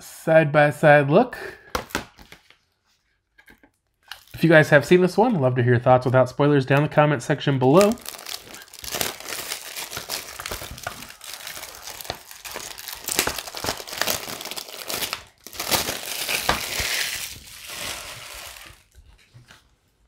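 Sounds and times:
plastic wrap crinkling and tearing: 7.6s - 19.0s.

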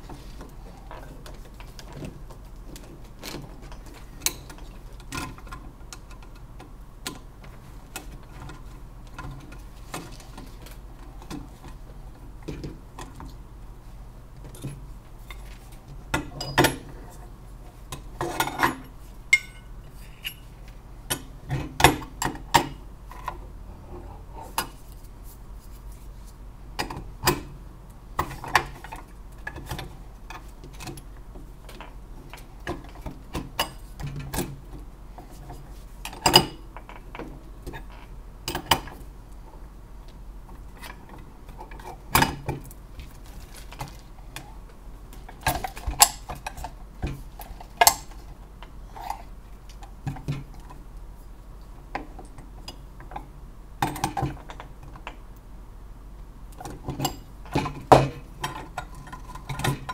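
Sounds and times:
metal clinks and knocks on table: 19.4s - 20.5s.

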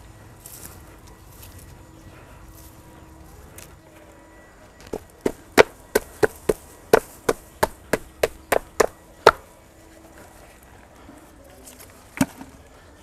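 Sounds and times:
hand slapping plastic pot: 4.9s - 9.4s.

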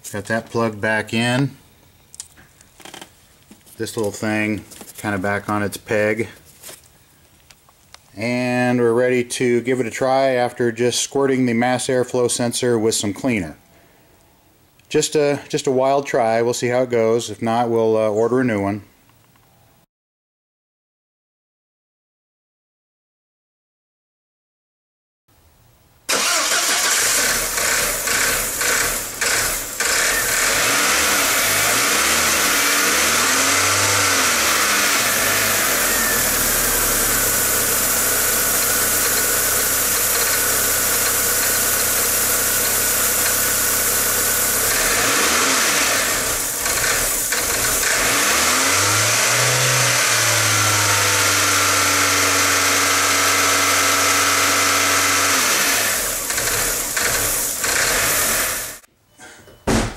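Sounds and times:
car engine starting and revving: 26.1s - 58.9s.

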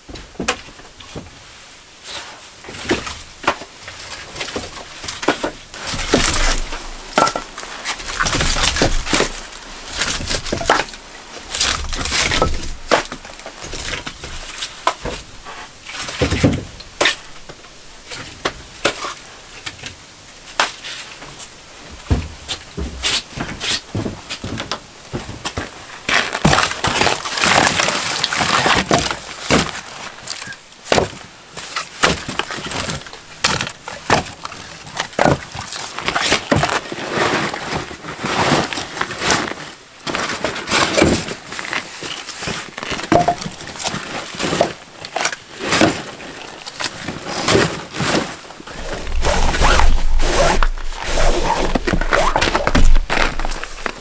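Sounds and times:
wooden logs knocking together: 4.4s - 11.0s, 42.5s - 44.0s
fabric bag rustling: 47.9s - 54.0s
rope drawn over bag rumble: 48.2s - 54.0s.

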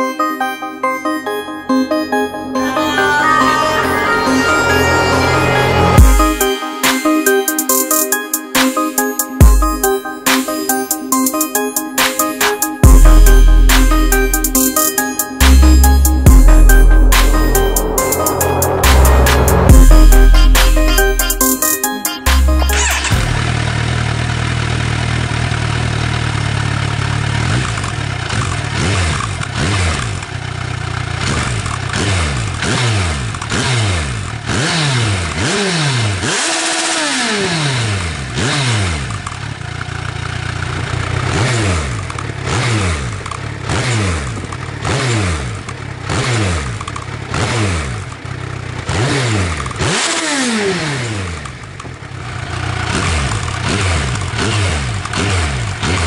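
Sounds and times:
motorcycle engine revving: 23.2s - 56.0s.

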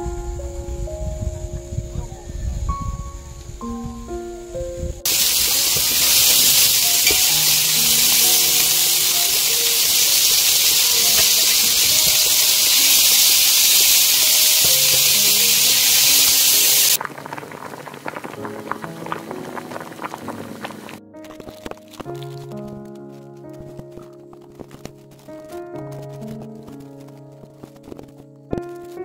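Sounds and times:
music: 0.0s - 13.1s, 14.5s - 17.0s, 18.4s - 29.0s
meat sizzling on a griddle: 5.1s - 17.0s.

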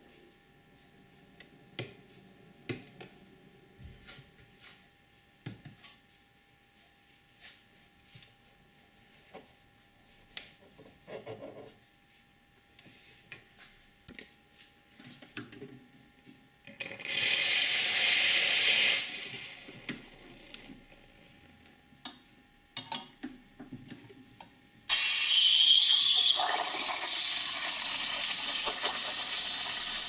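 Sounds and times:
loud steam hiss: 17.1s - 19.7s, 24.9s - 30.0s.

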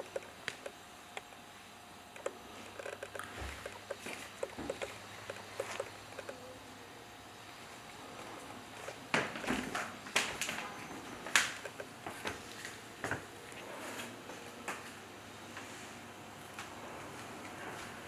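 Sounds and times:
sharp irregular clicks and knocks: 0.0s - 1.4s, 2.2s - 6.4s, 11.3s - 11.9s.

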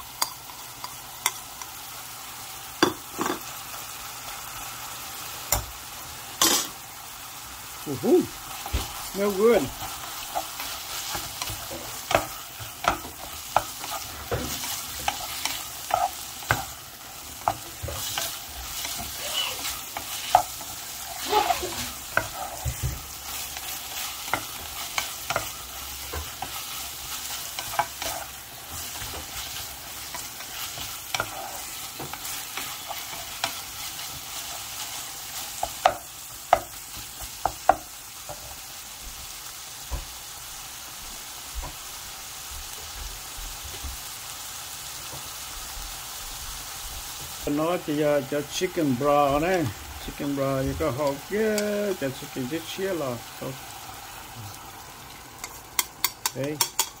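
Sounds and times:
food sizzling in a pan: 0.0s - 57.0s
utensil scraping a pan: 9.5s - 34.7s.

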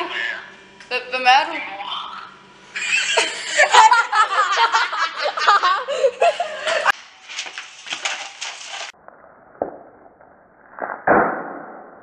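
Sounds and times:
young people laughing and talking: 2.7s - 6.9s.

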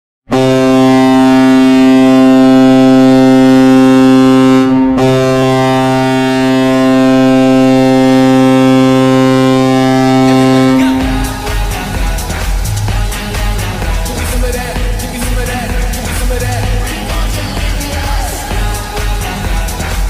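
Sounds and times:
hockey goal horn blast: 0.3s - 20.0s.

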